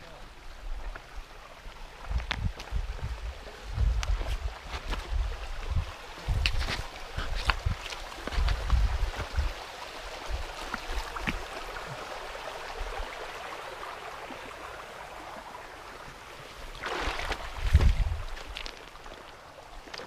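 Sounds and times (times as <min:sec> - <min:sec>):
stream flowing over stones: 0:00.0 - 0:20.0
wind rumble on microphone: 0:00.5 - 0:11.5, 0:17.2 - 0:18.7.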